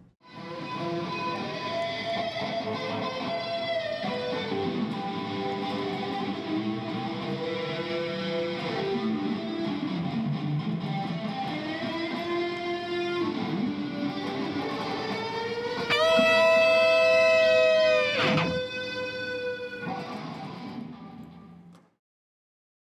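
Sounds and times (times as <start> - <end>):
guitar melody: 0.2 - 21.7.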